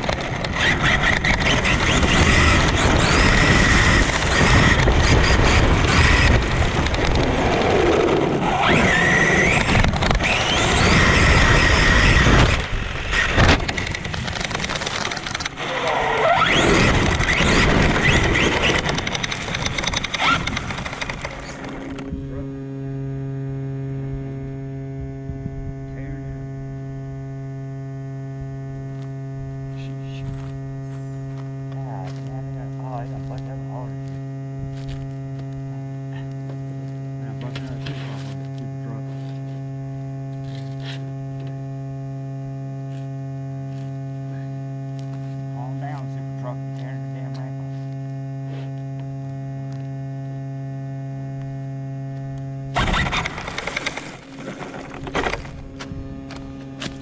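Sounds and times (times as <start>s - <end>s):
rc truck rumbling rattle: 0.0s - 22.1s, 52.7s - 57.0s
electrical hum: 0.0s - 57.0s.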